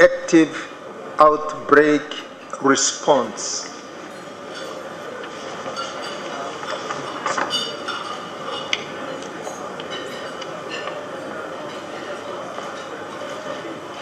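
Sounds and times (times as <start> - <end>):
large room hum: 0.0 - 14.0
glassware and cutlery clinks: 4.0 - 13.8.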